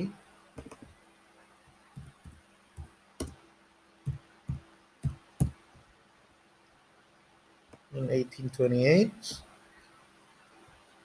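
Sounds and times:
keyboard typing: 0:00.6 - 0:01.0, 0:01.9 - 0:03.4.

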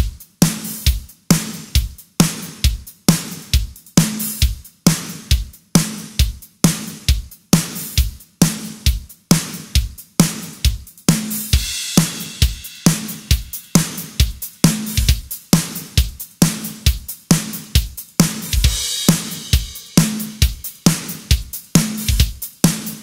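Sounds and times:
rock drum beat: 0:00.0 - 0:23.0
cymbal wash: 0:11.6 - 0:15.0, 0:18.7 - 0:21.2.

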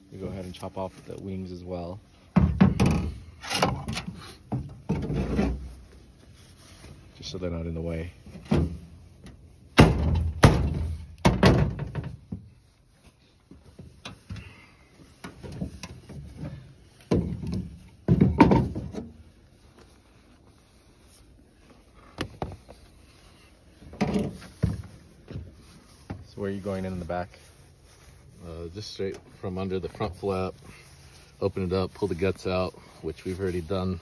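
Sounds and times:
rustling: 0:00.0 - 0:34.0
thumps on metal tailgate: 0:09.8 - 0:12.2, 0:17.1 - 0:19.1.

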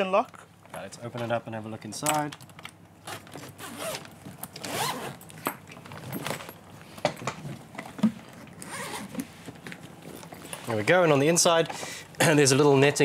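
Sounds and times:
suitcase zipper opening: 0:03.0 - 0:06.5, 0:08.5 - 0:09.3.

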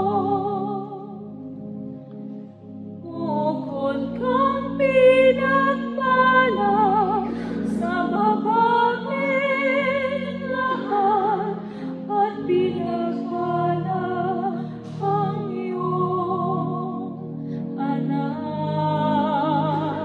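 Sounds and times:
organ chords: 0:00.0 - 0:20.0.

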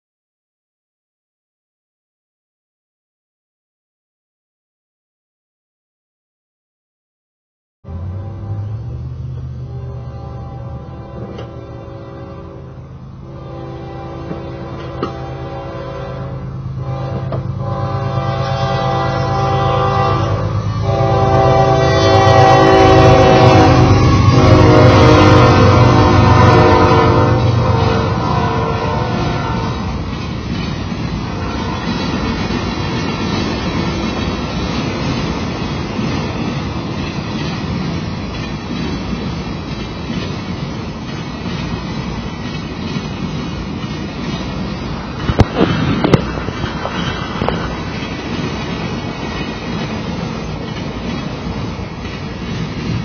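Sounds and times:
locomotive air horn blasts: 0:07.8 - 0:09.0, 0:09.6 - 0:29.9, 0:31.3 - 0:32.4
freight train wheels rumbling on rails: 0:07.9 - 0:53.0.

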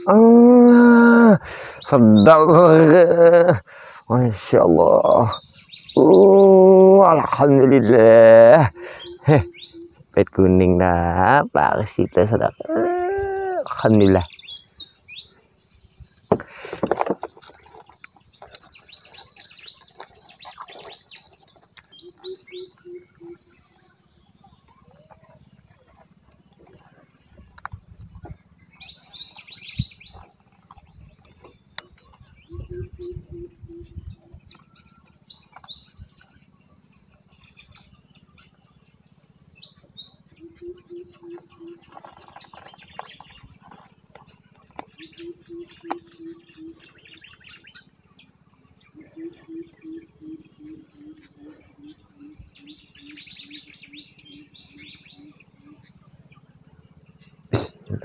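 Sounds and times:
low hooting call: 0:00.0 - 0:14.3, 0:48.9 - 0:53.6
birds chirping: 0:00.0 - 0:58.0
insects droning: 0:00.0 - 0:58.0
dull knocks: 0:16.3 - 0:17.6.

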